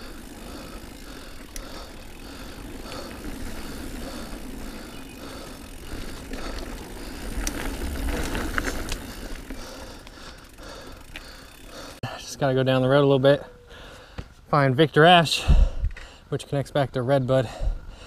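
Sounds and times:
bike rattling: 0:00.0 - 0:12.0
low wind rumble: 0:00.0 - 0:12.0
bike tyres rolling on dirt: 0:00.0 - 0:16.8.

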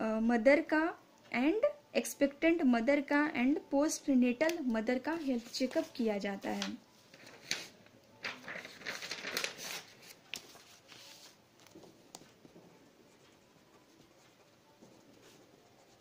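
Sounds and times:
paper rustling: 0:05.3 - 0:12.6
pen scratching on paper: 0:13.0 - 0:16.0.

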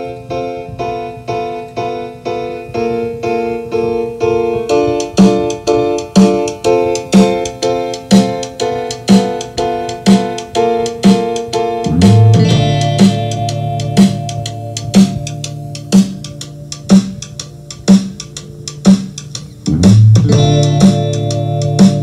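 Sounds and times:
keyboard tune of chords: 0:00.0 - 0:22.0
strong beat: 0:04.3 - 0:22.0
low bass note: 0:11.9 - 0:13.8.

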